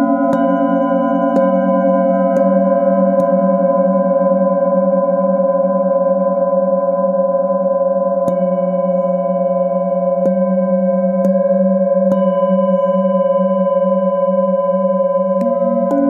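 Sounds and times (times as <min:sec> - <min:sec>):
mallet striking bowl: 0:00.0 - 0:04.1, 0:08.2 - 0:09.2, 0:10.1 - 0:13.6, 0:15.3 - 0:16.0
singing bowl ringing: 0:00.0 - 0:16.0.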